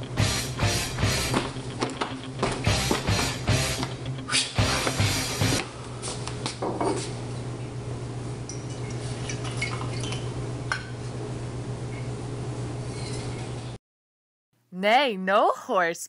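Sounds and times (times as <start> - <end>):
music: 0.0 - 5.6
glass jug clinking: 8.5 - 11.0.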